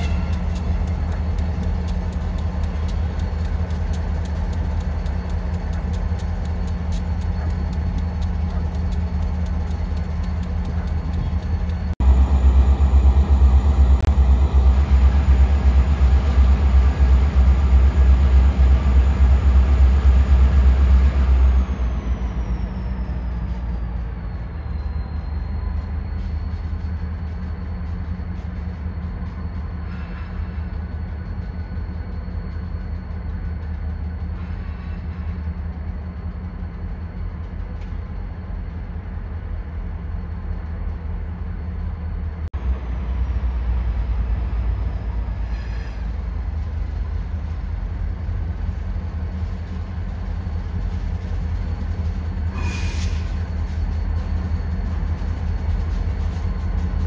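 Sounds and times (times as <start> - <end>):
diesel locomotive engine droning: 0.0 - 57.0
high whine: 0.0 - 57.0.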